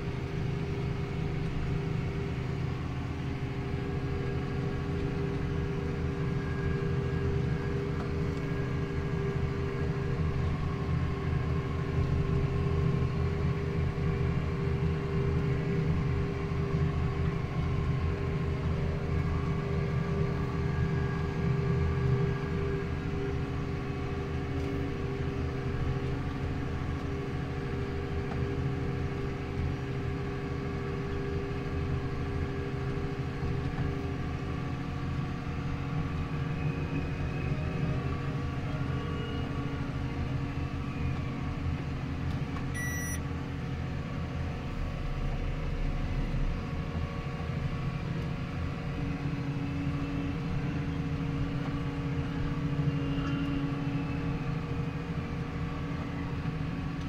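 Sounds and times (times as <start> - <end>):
short electronic beep: 42.8 - 43.2.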